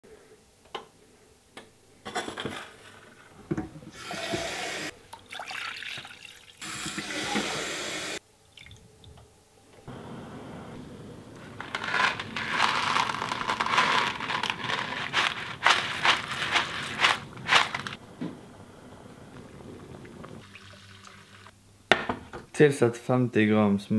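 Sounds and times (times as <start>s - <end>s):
water pouring into saucepan: 5.1s - 6.6s, 19.8s - 21.5s
dry pasta rattling into water: 11.6s - 18.0s.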